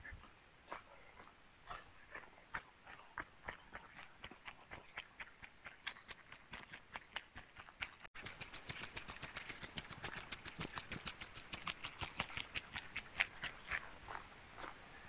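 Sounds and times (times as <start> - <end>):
footsteps crunching on a trail: 0.1 - 14.9.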